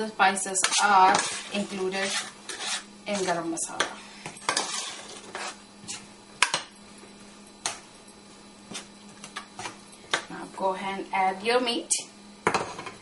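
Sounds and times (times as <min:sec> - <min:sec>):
steady low hum: 0:00.0 - 0:13.0
metal spoon scraping a steel pan: 0:00.6 - 0:03.4, 0:04.4 - 0:05.6.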